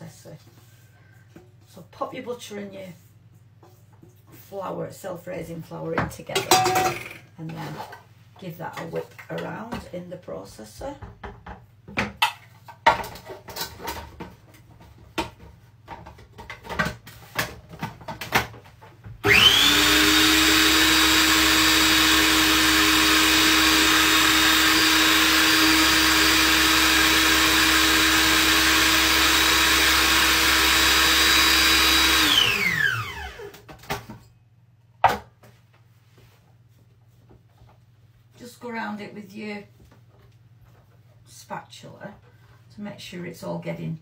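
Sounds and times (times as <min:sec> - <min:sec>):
food processor motor running: 0:19.2 - 0:33.7.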